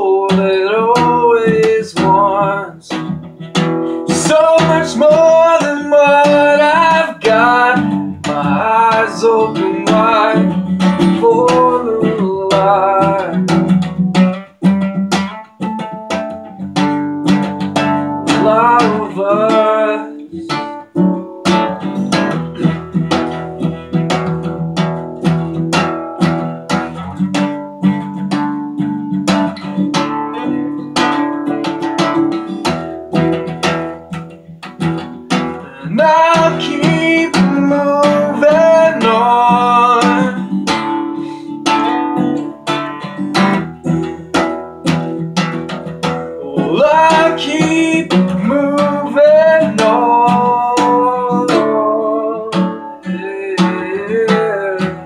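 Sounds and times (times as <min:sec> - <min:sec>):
man singing: 0:00.0 - 0:14.0, 0:17.3 - 0:23.0, 0:32.3 - 0:55.0
acoustic guitar strumming: 0:00.0 - 0:55.0.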